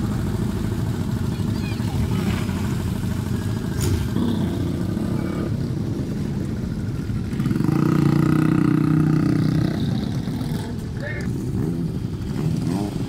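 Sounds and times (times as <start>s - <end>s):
motorcycle engines: 0.0s - 13.0s.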